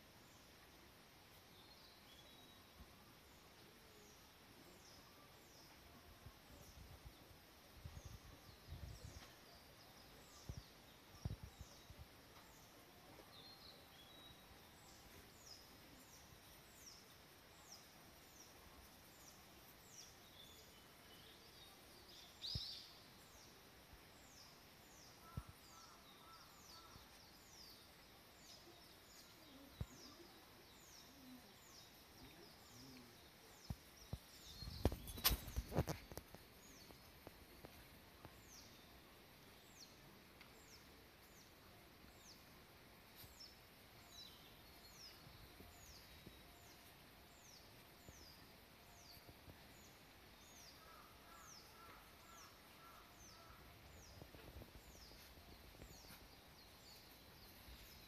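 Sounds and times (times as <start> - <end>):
bird chirping: 1.3 - 58.0
close knocks and rustles: 34.7 - 36.4.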